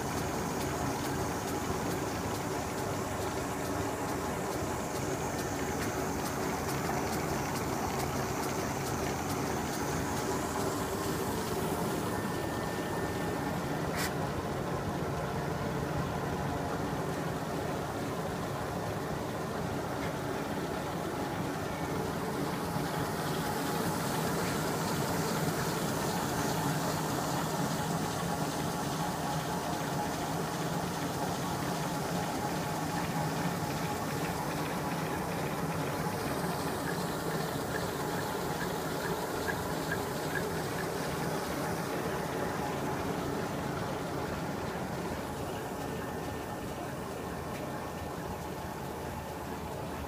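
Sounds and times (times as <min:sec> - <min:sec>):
light regular ticking: 0:00.0 - 0:13.4
dough sheeter mechanical hum: 0:00.0 - 0:50.0.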